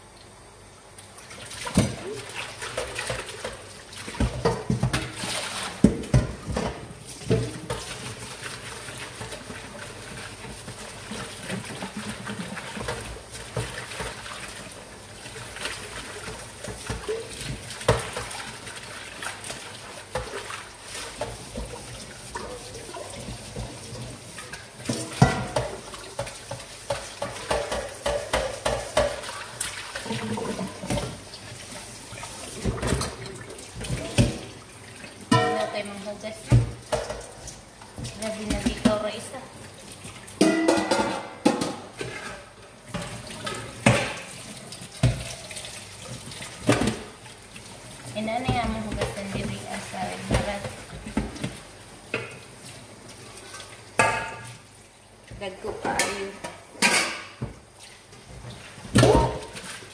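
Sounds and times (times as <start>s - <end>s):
water pouring from tap: 1.0s - 56.0s
metal pans clanking: 24.9s - 29.3s, 35.3s - 37.4s, 40.4s - 44.4s, 55.6s - 57.6s.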